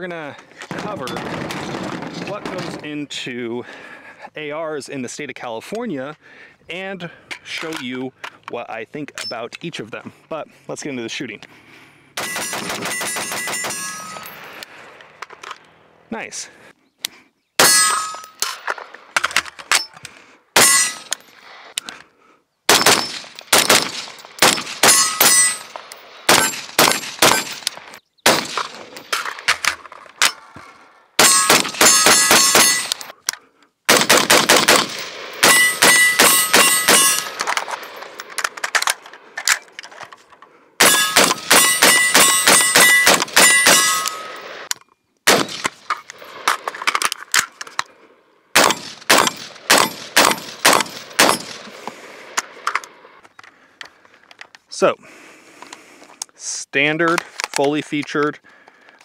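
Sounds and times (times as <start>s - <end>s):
rifle gunshots: 12.2s - 14.5s, 22.7s - 29.5s, 31.2s - 33.0s, 33.9s - 38.6s, 40.8s - 44.7s, 45.3s - 46.7s, 48.6s - 52.6s
metallic ringing: 12.2s - 14.6s, 17.6s - 18.5s, 20.6s - 21.4s, 24.8s - 25.8s, 31.2s - 33.1s, 35.4s - 37.4s, 40.8s - 44.5s.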